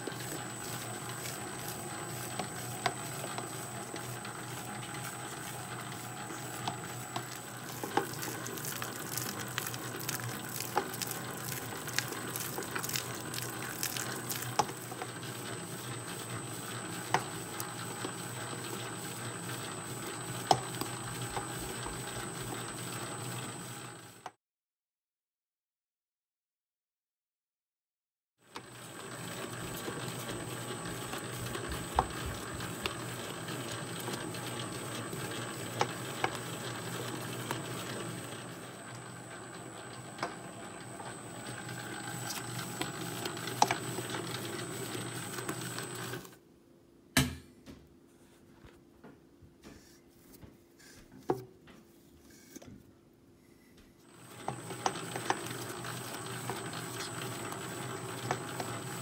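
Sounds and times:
dough mixer running: 0:00.0 - 0:24.3, 0:28.5 - 0:46.4, 0:54.0 - 0:59.0.

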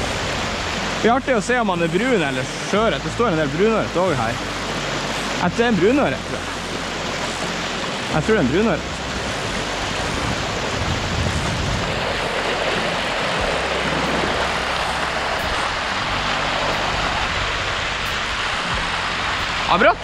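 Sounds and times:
river current rushing: 0:00.0 - 0:20.0.

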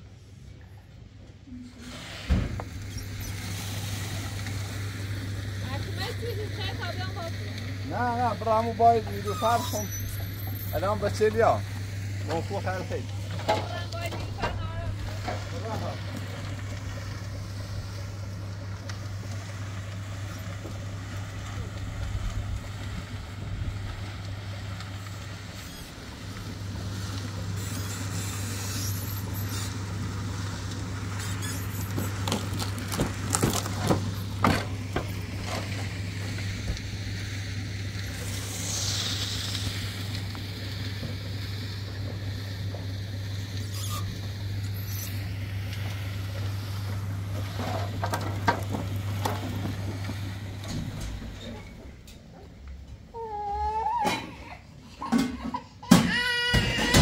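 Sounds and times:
concrete mixer humming: 0:00.0 - 0:57.0
high squeal falling in pitch: 0:09.2 - 0:11.2.

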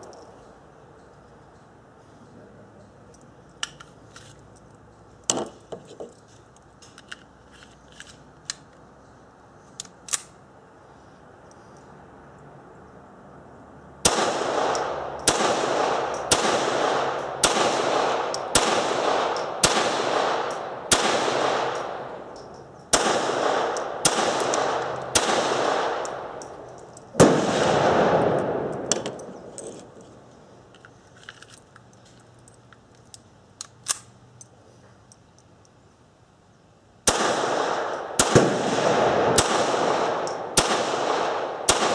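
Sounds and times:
pistol shots echoing: 0:14.0 - 0:22.3, 0:22.9 - 0:26.6, 0:27.2 - 0:29.3, 0:37.0 - 0:41.9.

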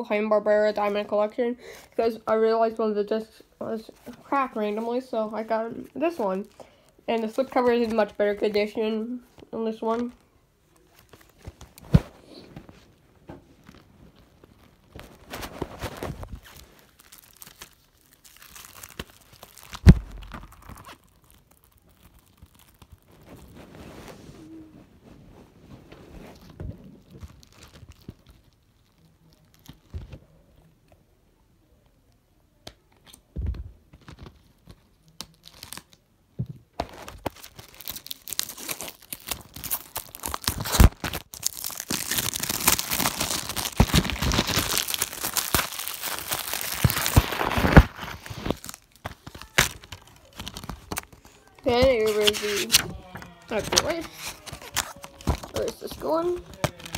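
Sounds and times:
plastic wrap tearing and crinkling: 0:09.8 - 0:12.8, 0:13.5 - 0:24.2, 0:26.2 - 0:30.2, 0:34.0 - 0:36.0, 0:36.8 - 0:56.9.

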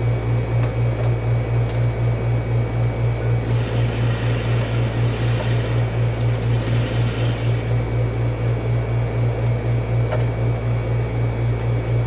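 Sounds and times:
sewing machine running: 0:03.2 - 0:08.0.

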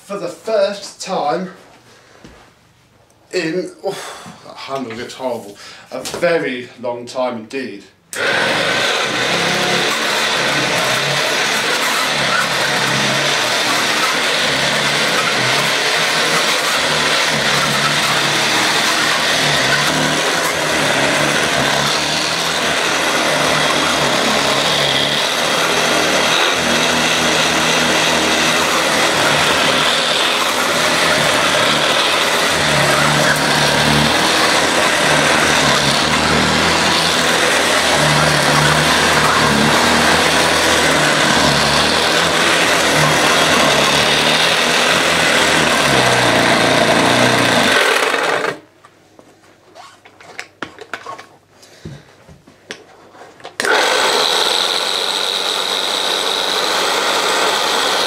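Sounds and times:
vacuum cleaner running on carpet: 0:08.2 - 0:48.5.

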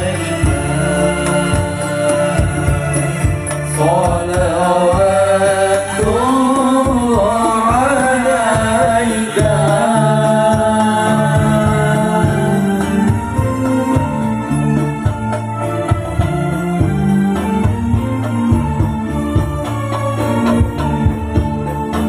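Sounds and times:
person singing long sliding notes: 0:00.0 - 0:14.2
low musical accompaniment: 0:00.0 - 0:22.0.

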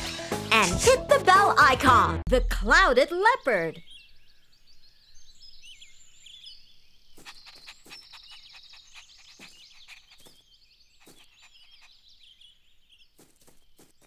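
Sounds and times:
small birds chirping: 0:02.8 - 0:14.0.

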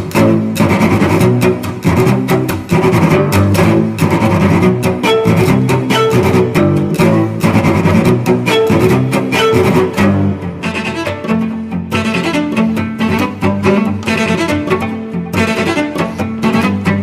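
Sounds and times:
steady beat: 0:00.0 - 0:11.1
bowed low strings: 0:00.0 - 0:17.0.

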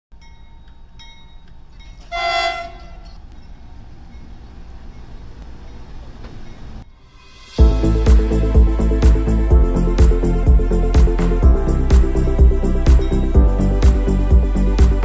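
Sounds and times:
train rumbling: 0:00.2 - 0:15.0
train horn blast: 0:02.0 - 0:03.2.

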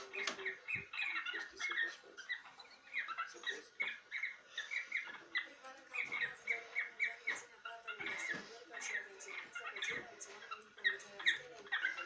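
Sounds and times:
cockatiels chirping: 0:00.0 - 0:12.0.

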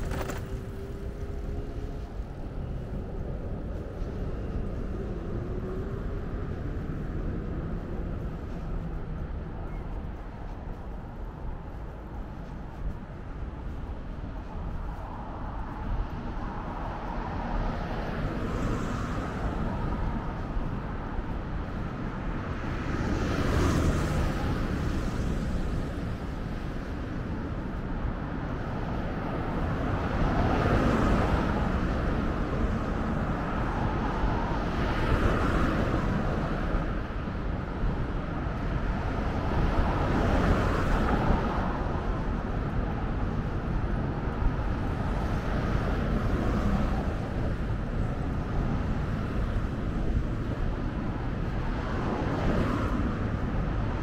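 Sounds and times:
cars passing: 0:00.0 - 0:54.0
low traffic rumble: 0:00.0 - 0:54.0.

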